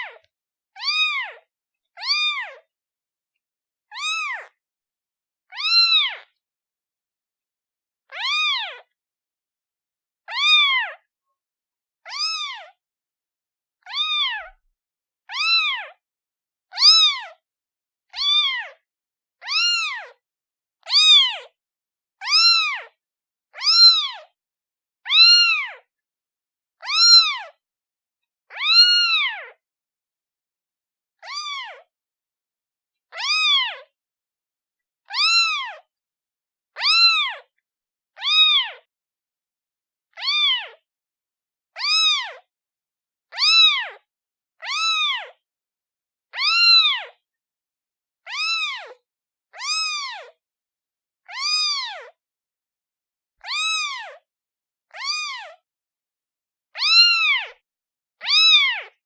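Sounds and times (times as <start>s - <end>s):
kitten meowing: 0.0s - 2.6s, 3.9s - 4.6s, 5.5s - 6.4s, 8.1s - 9.0s, 10.3s - 11.1s, 12.1s - 12.8s, 13.8s - 14.6s, 15.3s - 16.0s, 16.7s - 17.4s, 18.1s - 18.8s, 19.4s - 20.2s, 20.8s - 21.5s, 22.2s - 22.9s, 23.6s - 24.3s, 25.1s - 25.9s, 26.8s - 27.6s, 28.5s - 29.6s, 31.2s - 31.9s, 33.1s - 33.9s, 35.0s - 35.9s, 36.8s - 37.5s, 38.2s - 38.9s, 40.1s - 40.8s, 41.8s - 42.5s, 43.3s - 44.0s, 44.6s - 45.4s, 46.3s - 47.2s, 48.3s - 50.4s, 51.2s - 52.2s, 53.4s - 54.2s, 54.9s - 55.6s, 56.8s - 57.6s, 58.2s - 59.0s.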